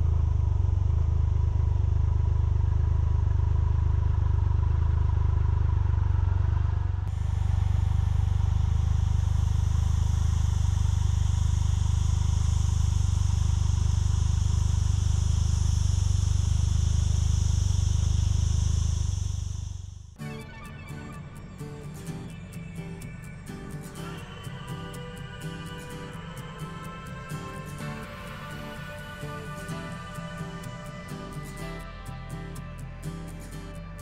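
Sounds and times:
motorcycle engine idling: 0:00.0 - 0:20.2
steady high hiss: 0:07.1 - 0:20.1, 0:20.9 - 0:34.0.

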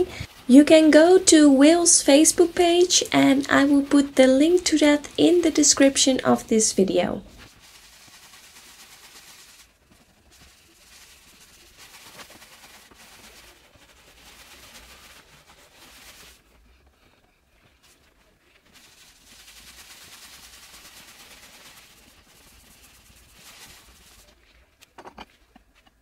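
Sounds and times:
cloth rubbing on wooden panel: 0:07.3 - 0:24.4.

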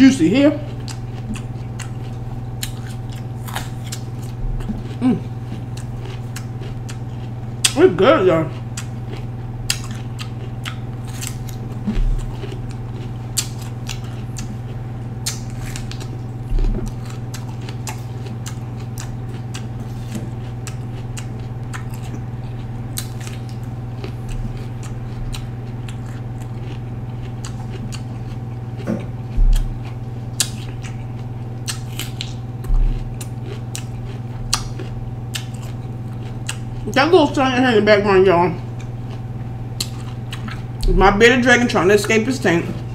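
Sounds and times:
steady low hum: 0:00.0 - 0:42.9
bell pepper crunching: 0:00.1 - 0:37.4, 0:38.6 - 0:42.9
dull low thumps: 0:29.3 - 0:29.8.

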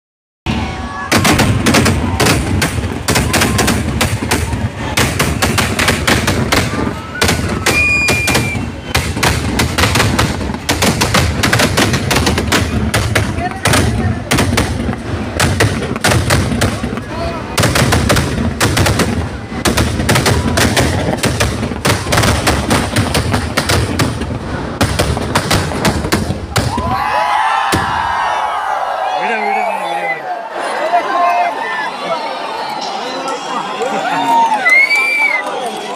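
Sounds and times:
crowd cheering: 0:00.5 - 0:23.6, 0:26.3 - 0:35.9
fireworks banging: 0:00.6 - 0:28.2.

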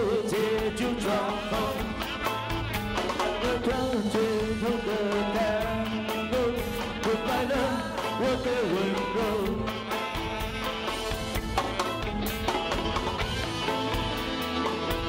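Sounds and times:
band playing pop song: 0:00.0 - 0:15.0
steady drum beat: 0:00.0 - 0:15.0.

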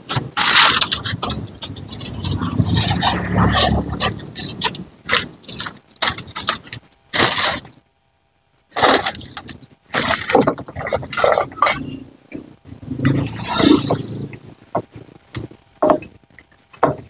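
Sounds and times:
plastic spoon scraping a plate: 0:00.1 - 0:07.7.

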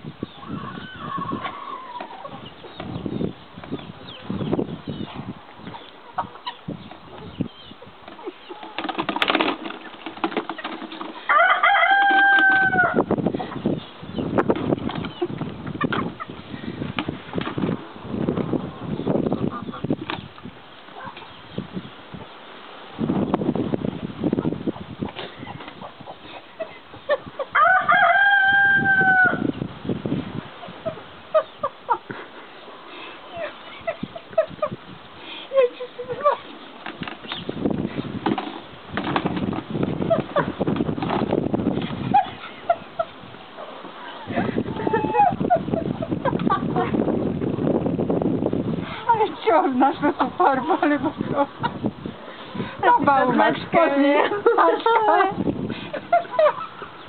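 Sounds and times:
chickens pecking plastic bucket: 0:08.0 - 0:13.6, 0:14.4 - 0:17.8, 0:36.2 - 0:43.2
rooster crowing: 0:11.3 - 0:13.1, 0:27.5 - 0:29.5.

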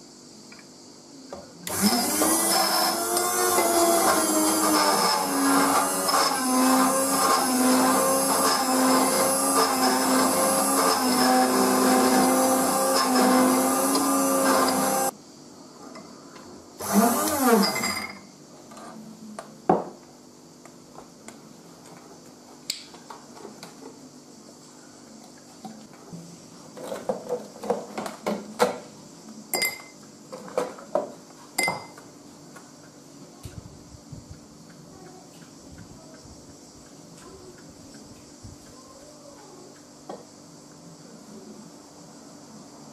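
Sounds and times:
drink mixer whirring: 0:01.7 - 0:15.1, 0:16.8 - 0:18.2
glassware clinking: 0:17.6 - 0:18.3, 0:29.5 - 0:30.0, 0:31.6 - 0:32.0.

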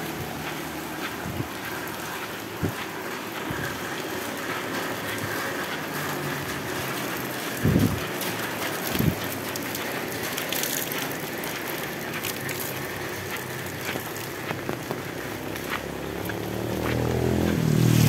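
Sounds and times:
heavy rain on road and leaves: 0:00.0 - 0:18.0
water drips: 0:00.0 - 0:18.0
motorcycle engine approaching: 0:13.2 - 0:18.0.

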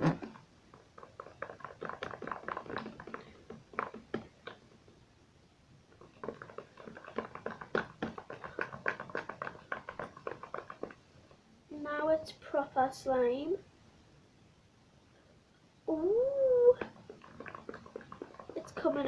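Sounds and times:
slime squelching by hand: 0:16.5 - 0:19.0.

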